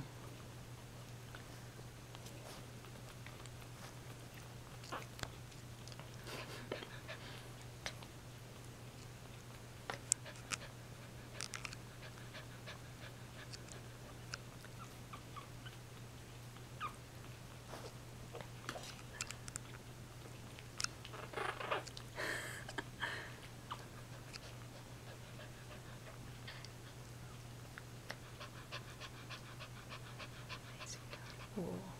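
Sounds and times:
steady low hum: 0:00.0 - 0:31.9
puppies squeaking: 0:16.8 - 0:17.0.

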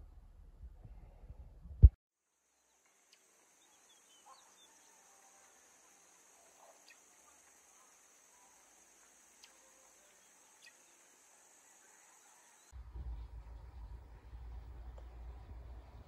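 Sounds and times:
steady high hiss: 0:02.3 - 0:16.0
small chirps: 0:02.6 - 0:12.7.

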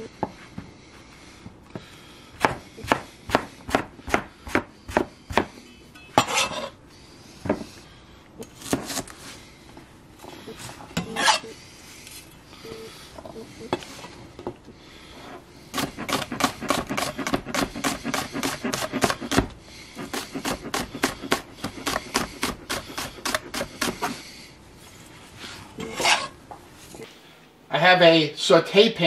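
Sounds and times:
knife chopping on cutting board: 0:02.4 - 0:05.6, 0:08.6 - 0:09.1, 0:15.8 - 0:24.1.

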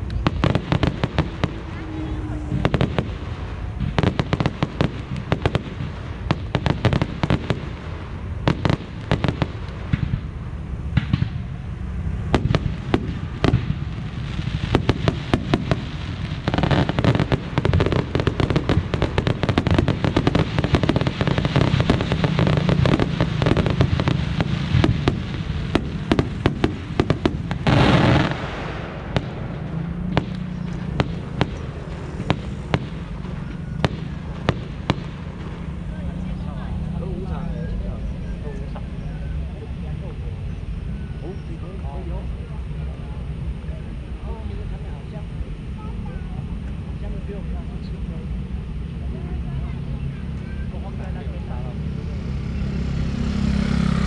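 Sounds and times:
fireworks bangs and pops: 0:00.0 - 0:11.6, 0:12.2 - 0:37.8
loud firework blast: 0:00.0 - 0:38.7.

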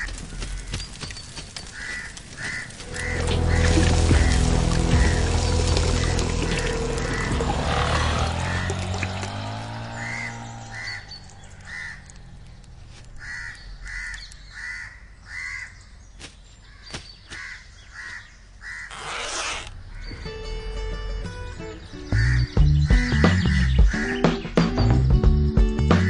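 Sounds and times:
bird calling: 0:00.0 - 0:20.4, 0:21.6 - 0:24.9
background music: 0:02.9 - 0:09.6, 0:20.2 - 0:26.0.

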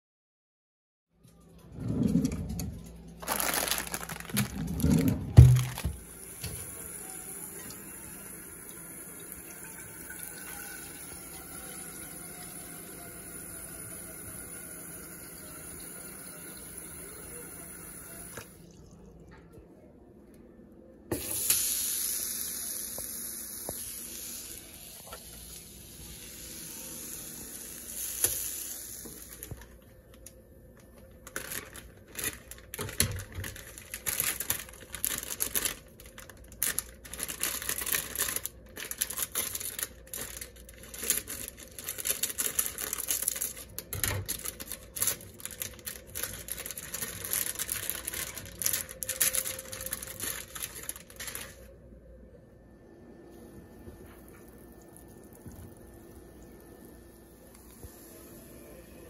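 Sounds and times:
plastic wrapper crinkling and tearing: 0:03.2 - 0:06.0, 0:31.0 - 0:51.7.

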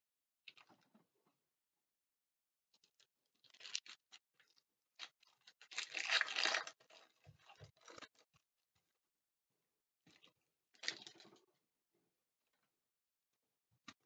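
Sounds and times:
foil pack crinkling and tearing: 0:03.4 - 0:04.1, 0:05.0 - 0:07.0.

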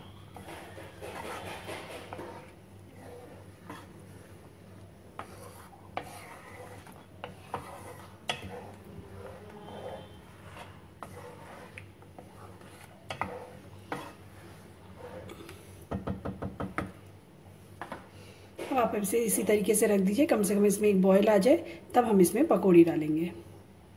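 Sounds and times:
spatula stirring liquid in a pan: 0:00.0 - 0:18.9.

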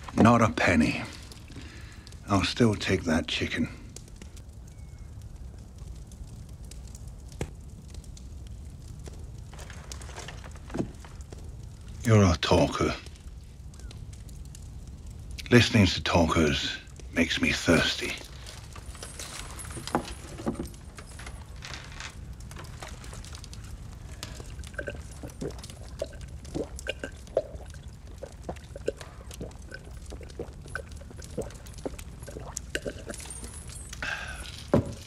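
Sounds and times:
man gulping and swallowing: 0:24.2 - 0:35.0.

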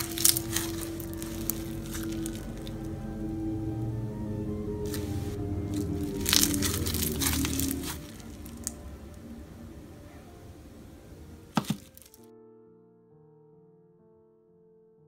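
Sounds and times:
slime crackling and popping: 0:00.0 - 0:03.0, 0:04.9 - 0:08.8, 0:11.5 - 0:12.2
soft piano music: 0:00.0 - 0:15.0.

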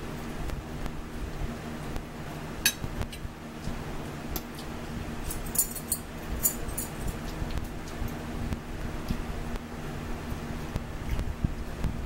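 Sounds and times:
low steady hum: 0:00.0 - 0:12.0
forks clinking on plates: 0:05.3 - 0:07.1.

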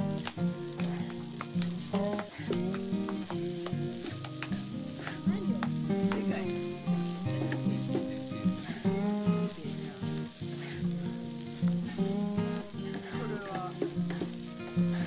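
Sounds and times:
background music: 0:00.0 - 0:15.0
rice sizzling on hot plate: 0:00.0 - 0:15.0
wood clicking on plate: 0:04.2 - 0:04.6.

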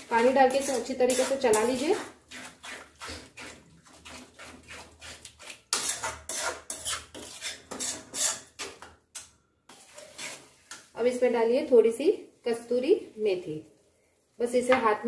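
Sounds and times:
metal spoon scraping metal pan: 0:00.0 - 0:10.9.

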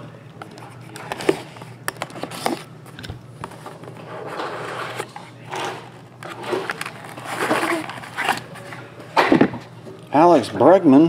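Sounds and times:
cardboard lid scraping: 0:03.6 - 0:08.8
plastic wrap crinkling: 0:06.2 - 0:08.8.

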